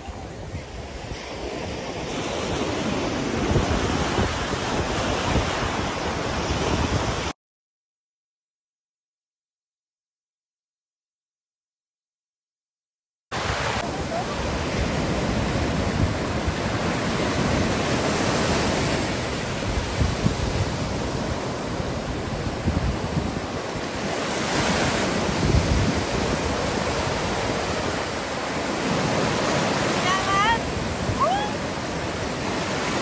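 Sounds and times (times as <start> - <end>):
ocean surf breaking: 0.0 - 7.3, 13.3 - 33.0
wind buffeting microphone: 0.0 - 7.3, 18.7 - 29.2.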